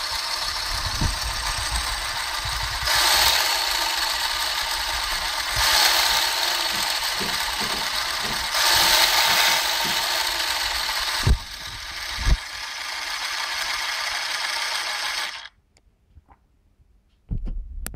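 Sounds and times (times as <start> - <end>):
model engine whirring clatter: 0.0 - 15.5
short knocks: 6.6 - 10.1.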